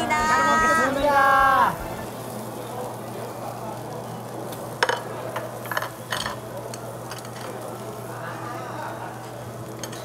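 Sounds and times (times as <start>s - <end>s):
restaurant hum and hiss: 0.0s - 10.0s
chopsticks clinking against bowls: 9.8s - 10.0s.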